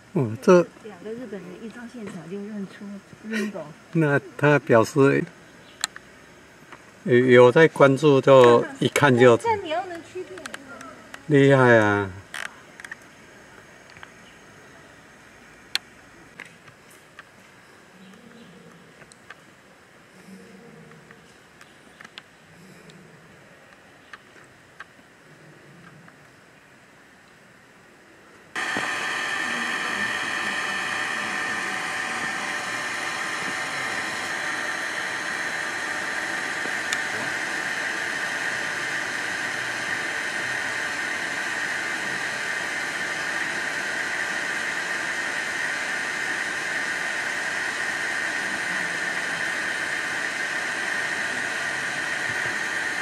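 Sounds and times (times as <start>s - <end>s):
steady tonal hiss: 0.0s - 53.0s.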